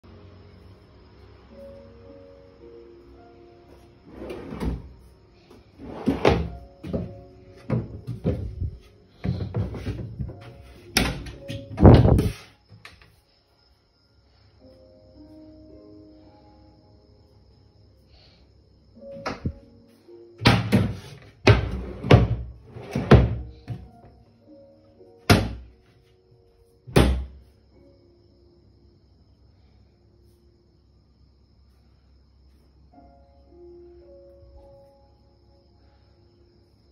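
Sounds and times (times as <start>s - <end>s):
faint background music: 0.0s - 36.9s
cabinet doors and drawers knocking: 4.2s - 4.9s, 5.8s - 12.4s, 20.4s - 23.9s, 25.3s - 25.6s, 26.9s - 27.4s
wooden cabinet doors thudding shut: 20.4s - 22.4s, 25.3s - 25.6s, 26.9s - 27.3s.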